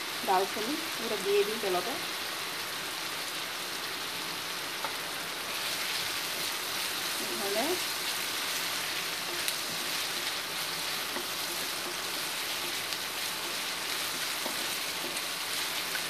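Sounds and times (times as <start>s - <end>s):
onions sizzling in hot oil: 0.0s - 16.0s
wooden spatula scraping a pan: 7.1s - 16.0s.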